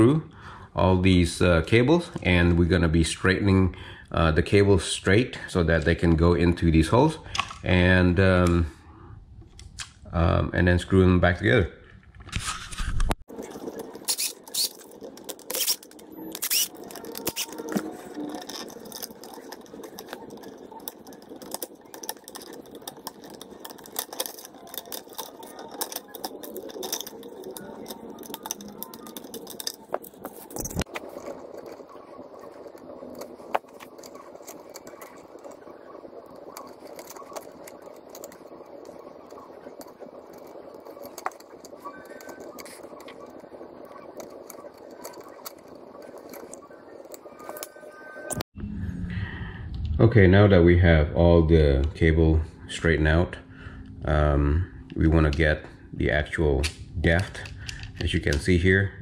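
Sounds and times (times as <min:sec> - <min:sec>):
screwdriver turning screws: 0:13.3 - 0:47.7
pliers working copper wire: 0:13.4 - 0:48.4.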